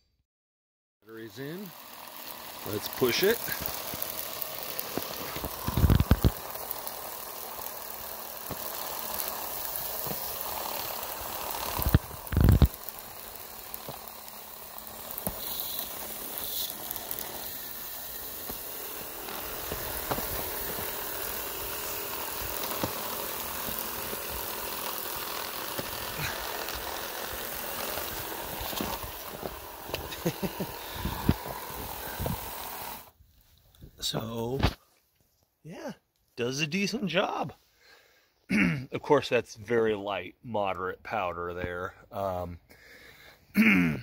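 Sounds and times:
small electric motor running: 0:01.1 - 0:33.2
brush hissing sweeping snow: 0:01.2 - 0:33.1.

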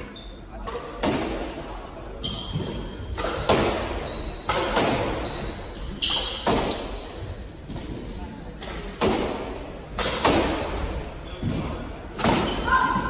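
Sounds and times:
shoes squeaking on hardwood floor: 0:01.3 - 0:13.0
squash ball cracking off racquets: 0:02.5 - 0:05.5.

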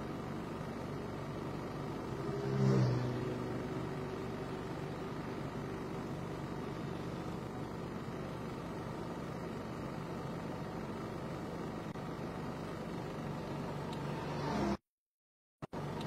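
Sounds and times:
engine idling: 0:00.0 - 0:02.3, 0:03.0 - 0:14.3
motorcycle engine approaching: 0:02.0 - 0:06.1.

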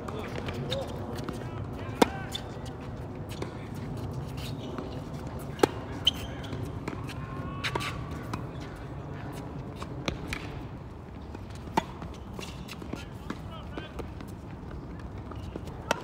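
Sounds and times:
tennis ball bouncing: 0:04.7 - 0:08.5, 0:09.3 - 0:10.6, 0:11.3 - 0:14.3, 0:14.9 - 0:16.0.

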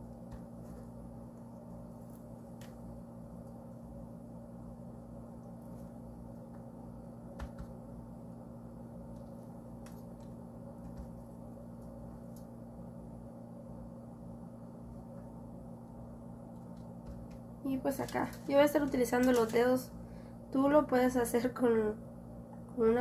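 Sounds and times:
faint clicks and taps: 0:09.1 - 0:11.2.

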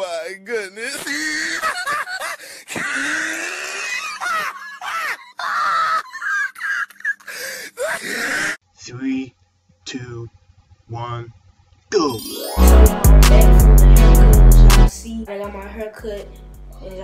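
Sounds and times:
person wailing and crying out: 0:01.0 - 0:08.6.

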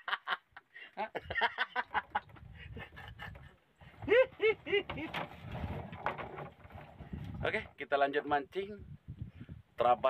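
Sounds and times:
man laughing: 0:00.0 - 0:05.2.

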